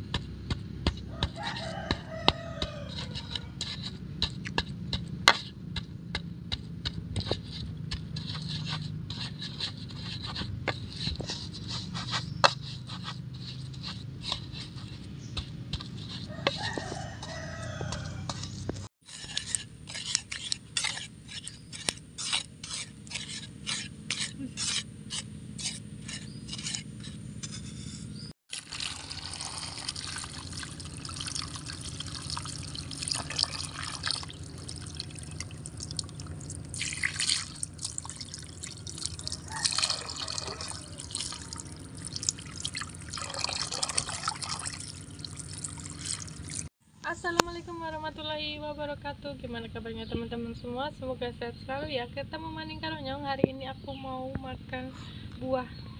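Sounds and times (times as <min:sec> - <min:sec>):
pestle pounding in mortar: 0:00.0 - 0:26.9.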